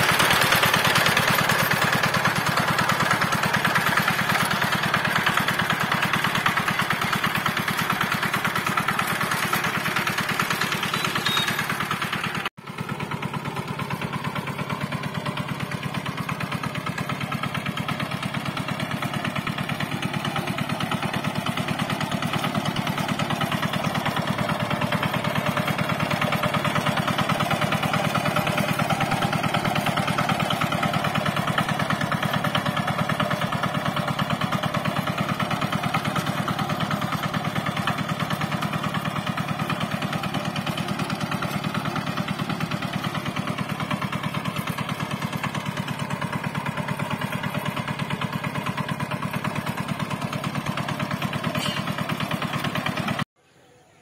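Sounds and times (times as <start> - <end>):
diesel engine chugging: 0.0 - 53.3.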